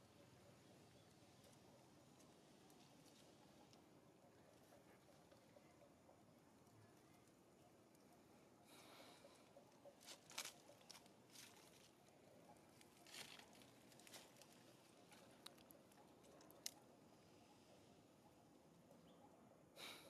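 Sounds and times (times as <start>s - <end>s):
dry leaves crackling: 10.0s - 12.0s, 12.8s - 15.7s.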